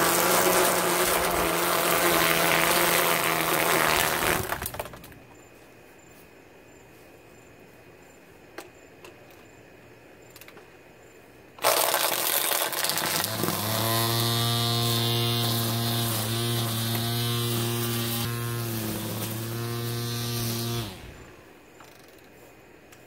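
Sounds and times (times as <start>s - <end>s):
string trimmer cutting grass: 0.0s - 4.9s, 11.6s - 21.5s.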